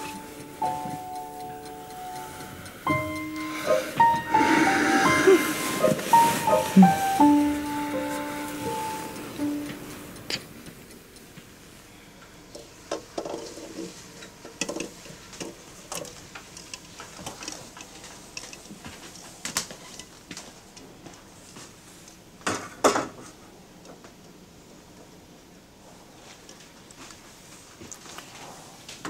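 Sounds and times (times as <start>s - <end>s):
saucepan ringing: 0.0s - 10.1s.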